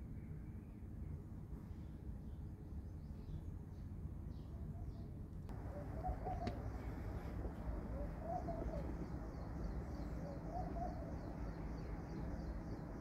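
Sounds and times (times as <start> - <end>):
low background noise: 0.0 - 13.0
dove cooing: 5.5 - 11.9.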